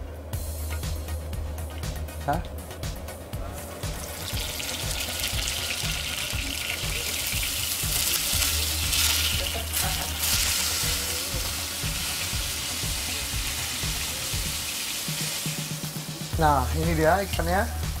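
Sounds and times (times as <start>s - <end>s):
fish fillet sizzling in oil: 3.9s - 16.3s.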